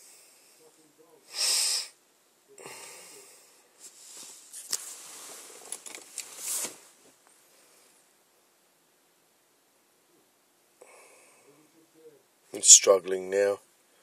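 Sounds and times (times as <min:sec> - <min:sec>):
handling rustling and scraping: 0:03.8 - 0:07.5.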